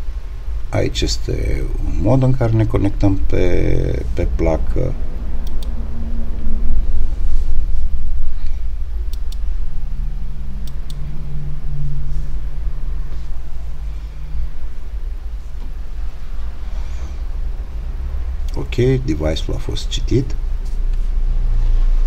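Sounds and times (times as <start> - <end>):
low rumble with droning hum: 0.0 - 22.0
sharp clicks: 5.4 - 5.8, 9.0 - 9.5, 10.6 - 11.0.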